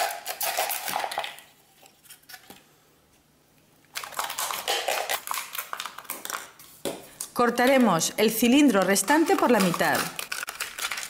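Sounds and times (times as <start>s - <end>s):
utility knife cutting plastic bottle: 8.8s - 11.0s.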